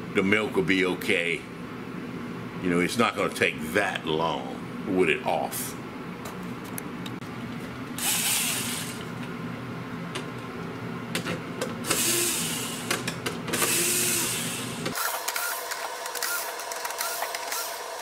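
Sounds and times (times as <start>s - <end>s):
electric screwdriver whirring: 8.0s - 9.0s, 11.8s - 12.9s, 13.6s - 18.0s.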